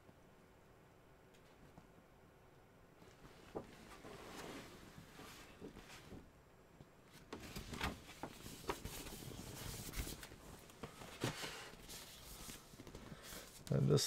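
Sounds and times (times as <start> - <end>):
paper posters rustling and tapping: 7.1 - 13.8.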